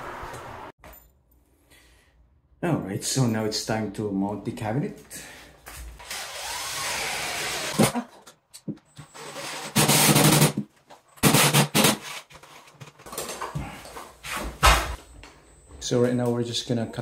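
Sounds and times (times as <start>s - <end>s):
cordless drill driving screws: 6.0s - 7.9s.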